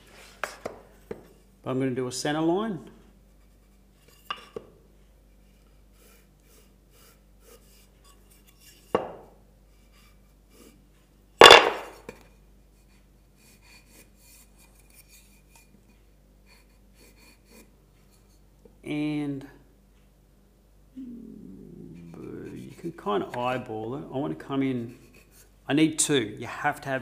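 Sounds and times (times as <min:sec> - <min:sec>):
faint pencil scratching: 0:05.4 - 0:08.9, 0:12.8 - 0:15.7, 0:16.4 - 0:18.4, 0:22.0 - 0:23.4, 0:24.7 - 0:25.5.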